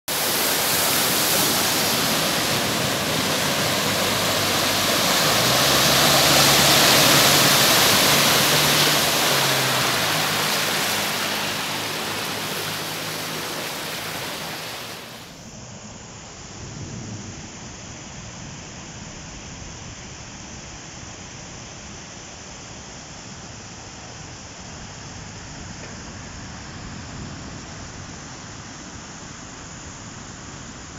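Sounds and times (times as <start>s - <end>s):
car engine hum: 0.0s - 15.4s
floodwater rushing: 0.0s - 15.4s
heavy rain: 0.0s - 15.4s.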